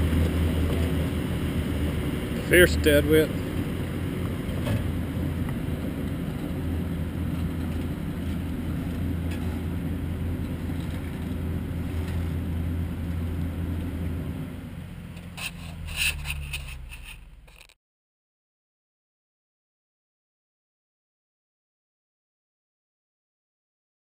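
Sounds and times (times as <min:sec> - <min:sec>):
truck diesel engine drone: 0:00.0 - 0:17.8.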